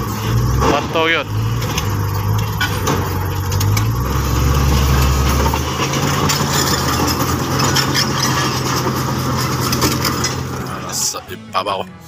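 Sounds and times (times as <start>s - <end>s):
bulldozer diesel engine: 0.0s - 12.0s.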